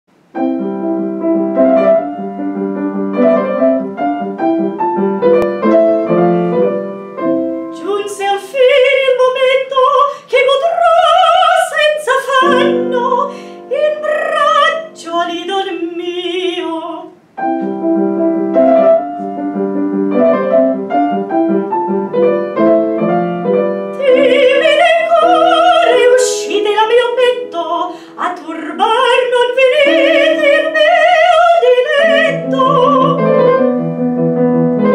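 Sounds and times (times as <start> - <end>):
piano: 0.1 - 34.9
woman singing operatically: 7.7 - 17.2, 24.0 - 33.4.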